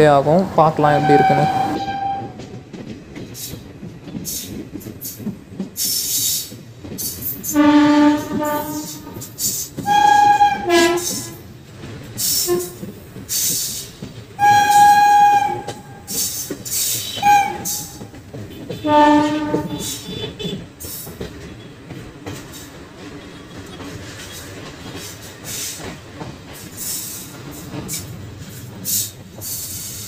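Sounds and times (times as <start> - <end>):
train running on track: 0.0 - 30.0
train horn blasts: 0.9 - 2.4, 7.5 - 9.2, 9.8 - 11.4, 12.4 - 12.8, 14.4 - 16.1, 17.0 - 20.6.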